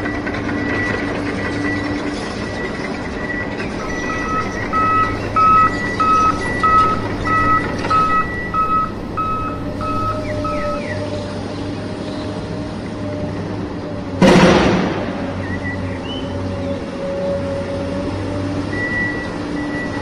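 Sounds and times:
steady low hum: 0:03.7 - 0:11.0
two-pitch electronic beeping: 0:03.7 - 0:11.0.

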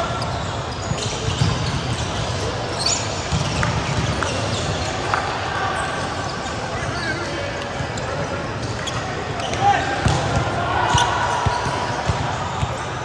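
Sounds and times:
volleyball hits: 0:10.0 - 0:12.8.

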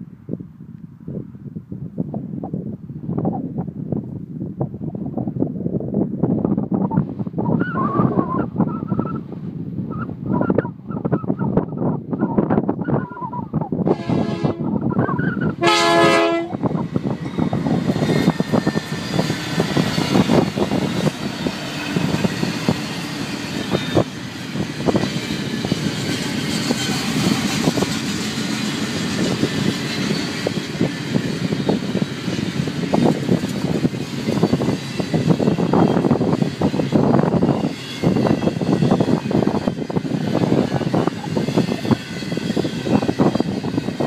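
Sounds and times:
freight train rumbling: 0:00.0 - 0:44.0
locomotive horn blasts: 0:13.9 - 0:14.8, 0:15.6 - 0:16.6.

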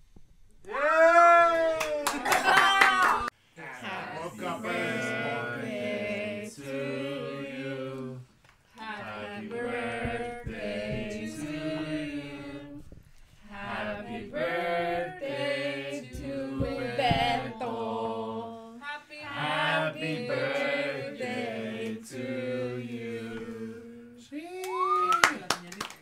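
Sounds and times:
group of people singing: 0:03.6 - 0:24.3.

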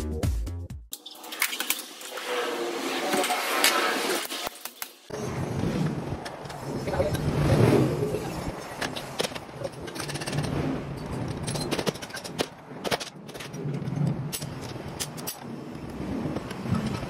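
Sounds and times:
metal hand tool clanks and clicks: 0:14.3 - 0:15.4.

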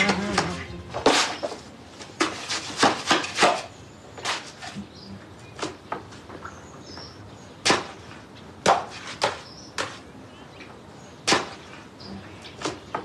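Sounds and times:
shovel scraping and striking ground: 0:00.0 - 0:04.8.

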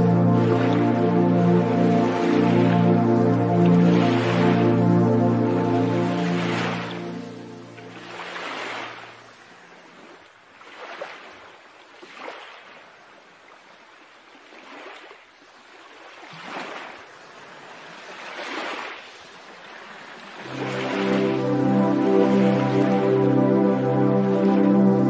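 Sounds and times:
soft music: 0:00.0 - 0:09.2, 0:20.4 - 0:25.0
sea waves washing: 0:00.0 - 0:09.5, 0:20.3 - 0:25.0.

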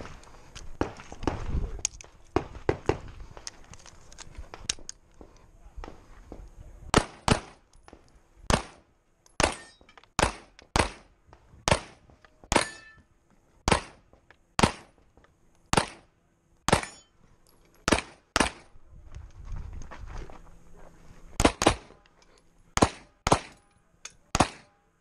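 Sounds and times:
pistol shots with echo: 0:06.9 - 0:07.6, 0:08.5 - 0:08.8, 0:09.4 - 0:11.1, 0:11.7 - 0:12.8, 0:13.7 - 0:14.0, 0:15.7 - 0:16.0, 0:16.7 - 0:17.0, 0:22.8 - 0:23.6, 0:24.3 - 0:24.7.

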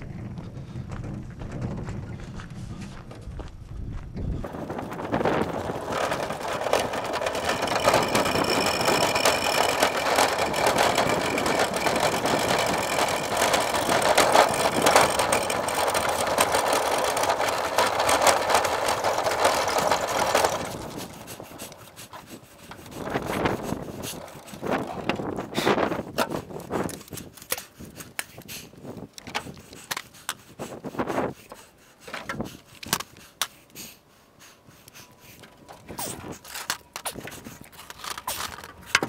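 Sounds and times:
boat dolly rattling over gravel: 0:04.4 - 0:27.5, 0:35.4 - 0:39.0.

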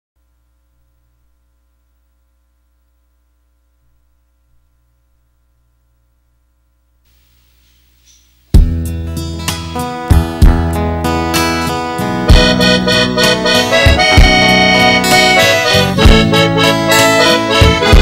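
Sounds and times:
faint low hum: 0:00.2 - 0:08.6
guitar strumming: 0:07.1 - 0:18.0.

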